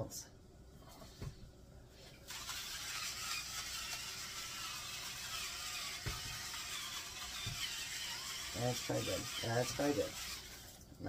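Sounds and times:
electric seasoning grinder running: 2.3 - 10.8.

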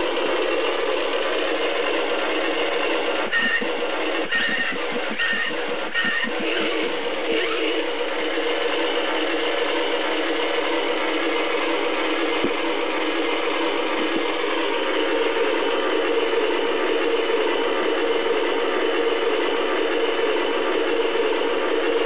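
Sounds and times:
toy motor and gears whirring: 2.8 - 7.9.

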